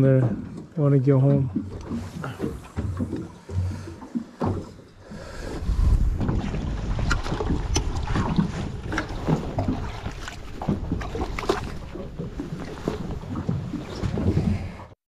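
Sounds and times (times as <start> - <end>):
water splashing and sloshing: 0.0 - 15.0
wind rumble on microphone: 5.3 - 15.0.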